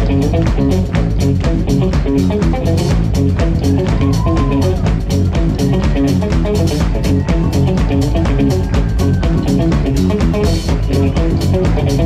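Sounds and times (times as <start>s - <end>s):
drum kit beat: 0.0s - 12.0s
electric bass: 0.0s - 12.0s
electric guitar: 0.0s - 12.0s.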